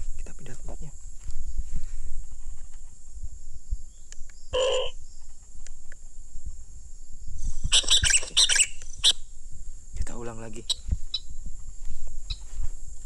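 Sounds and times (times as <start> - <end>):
short bird call: 4.6 - 5.0.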